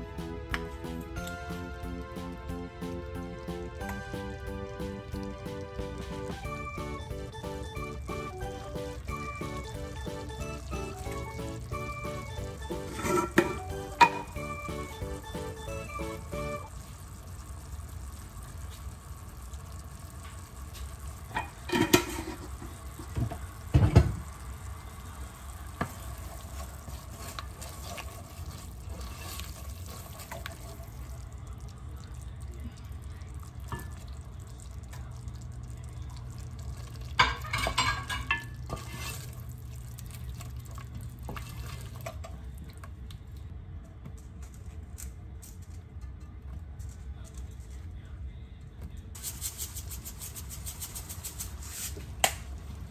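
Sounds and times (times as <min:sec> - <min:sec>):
curry bubbling and sizzling: 0:01.1 - 0:43.0.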